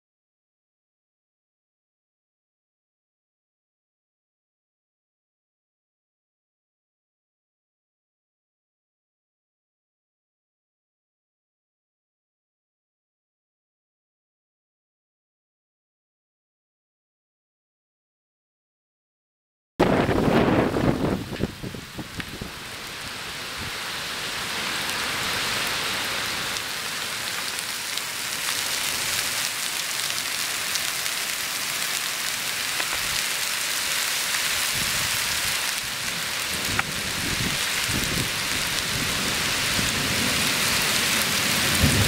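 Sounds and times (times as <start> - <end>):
thunder rumbling: 19.8 - 22.8, 34.7 - 42.0
heavy rain on pavement: 19.9 - 42.0.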